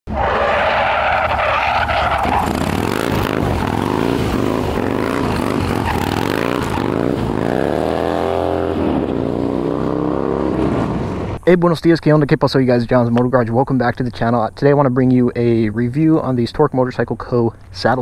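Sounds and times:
motorcycle engine revving: 0:01.2 - 0:11.4
harsh rushing noise: 0:01.2 - 0:11.5.

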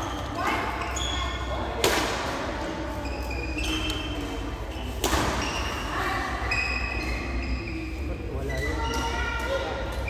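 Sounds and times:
badminton racket hitting shuttlecock: 0:01.8 - 0:02.4
shoes squeaking on sports floor: 0:02.9 - 0:09.2.

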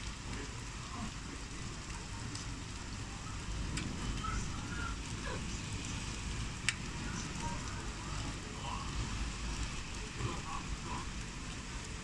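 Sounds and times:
heavy rain falling: 0:00.0 - 0:12.0
sharp ticks of raindrops: 0:00.0 - 0:12.0.

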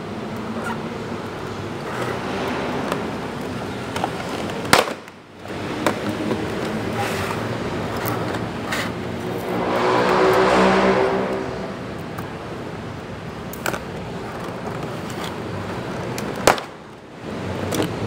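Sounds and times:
low pitched drone: 0:09.2 - 0:12.5.

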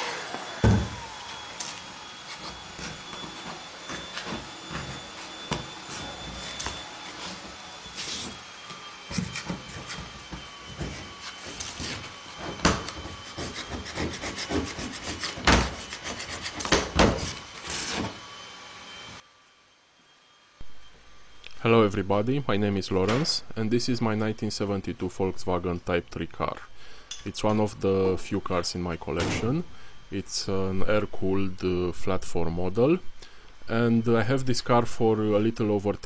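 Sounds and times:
metal scraper rasping on steel: 0:12.8 - 0:18.1.

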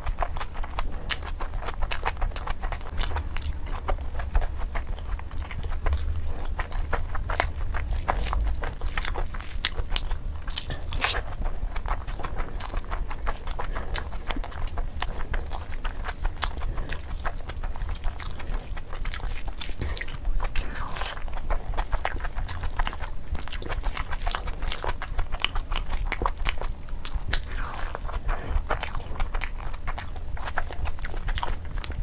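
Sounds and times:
steady low hum: 0:00.0 - 0:32.0
wet chewing and lip smacking: 0:00.0 - 0:32.0.

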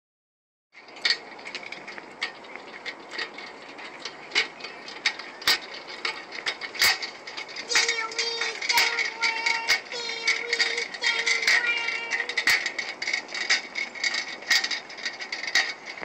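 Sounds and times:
tricycle rattling on concrete: 0:00.8 - 0:16.0.

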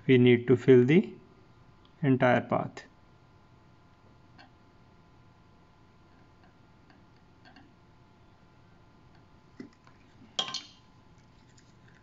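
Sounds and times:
faint steady hum: 0:00.0 - 0:12.0
soldering iron ticks and taps: 0:06.1 - 0:07.7.

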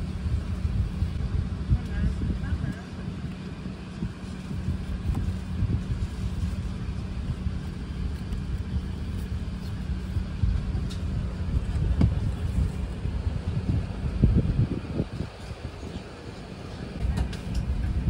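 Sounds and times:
airliner cabin rumble: 0:00.0 - 0:18.0.

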